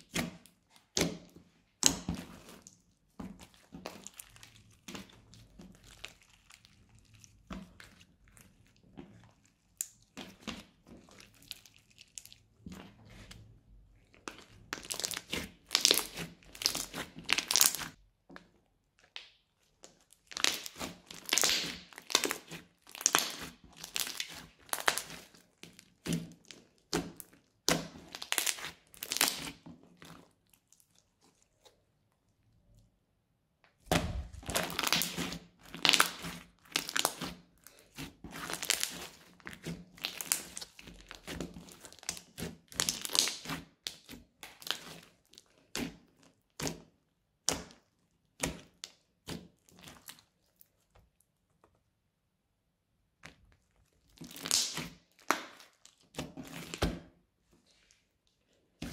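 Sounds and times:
slime crackling and popping: 14.0s - 18.0s, 19.1s - 31.3s, 33.8s - 51.2s, 53.2s - 56.8s.

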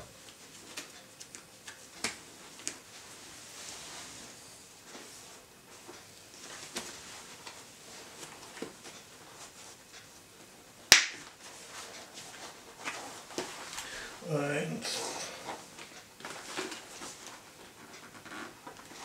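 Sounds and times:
sharp snap: 10.9s - 11.2s.

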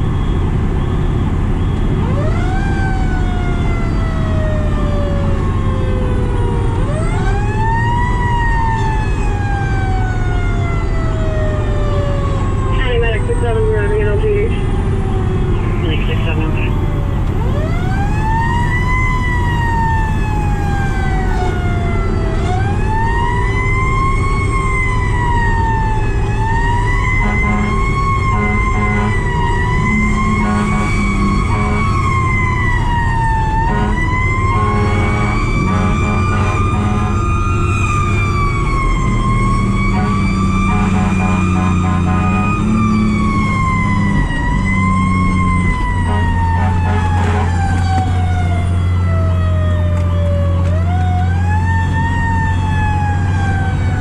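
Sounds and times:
fire truck siren wailing: 0.0s - 54.0s
truck engine: 0.0s - 54.0s
low horn blasts: 27.1s - 32.3s, 33.6s - 37.9s, 39.8s - 43.1s, 45.8s - 48.2s.

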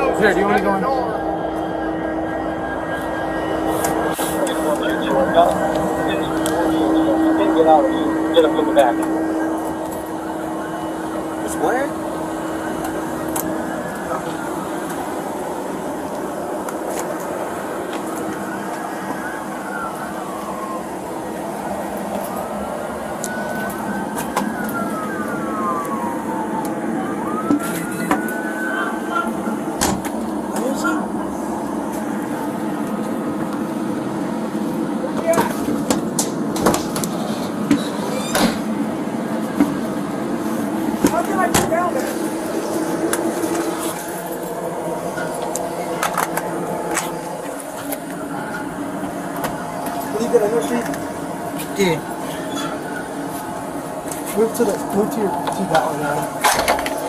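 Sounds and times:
siren wailing: 0.0s - 57.0s
steady background hum: 0.0s - 57.0s.

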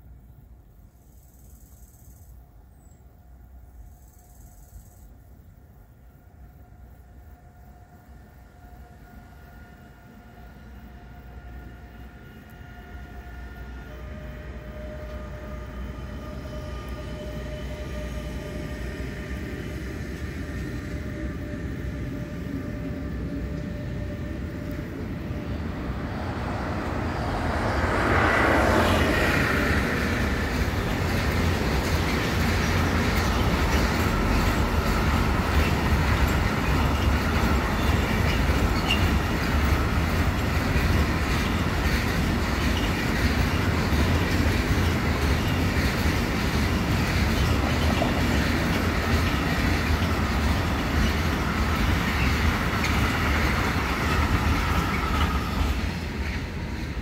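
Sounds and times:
freight train rolling past: 0.0s - 57.0s
wagons rumbling: 25.7s - 57.0s.

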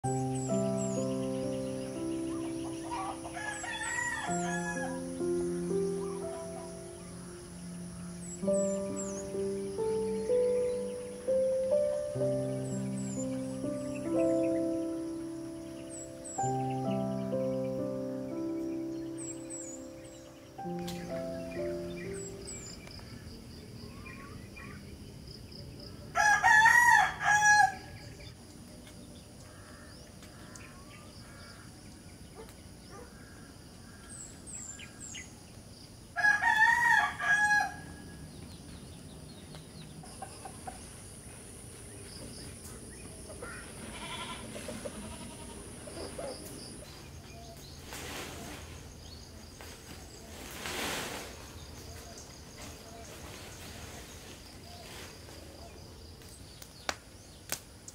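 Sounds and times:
high-pitched insect drone: 0.1s - 23.2s
rooster crowing: 2.4s - 5.2s, 26.2s - 28.0s, 36.2s - 38.2s.

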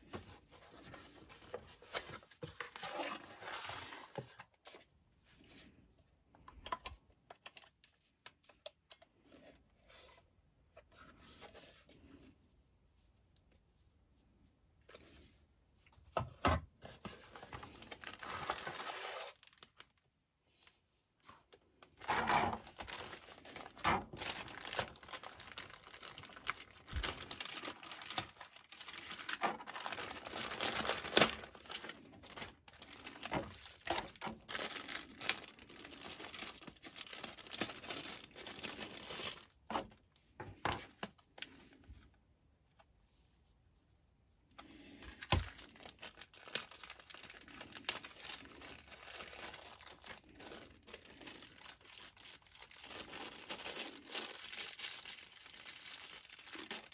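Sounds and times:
plastic bag crinkling: 17.2s - 20.0s, 21.5s - 40.0s, 45.1s - 56.9s
plastic bag tearing: 17.6s - 19.9s, 21.8s - 39.6s, 45.3s - 56.9s.

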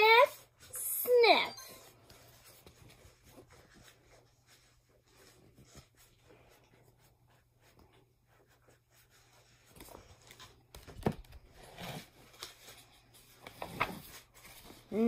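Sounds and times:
paper pages turning: 7.7s - 15.0s.

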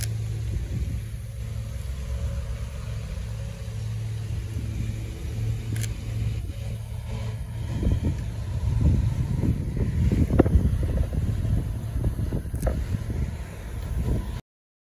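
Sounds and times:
low background rumble: 0.0s - 14.4s
camera shutter click: 5.7s - 6.0s.

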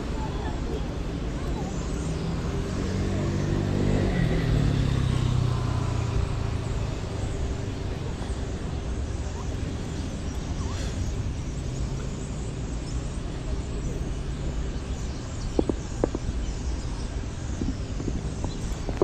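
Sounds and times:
vehicle low hum: 0.0s - 19.0s.

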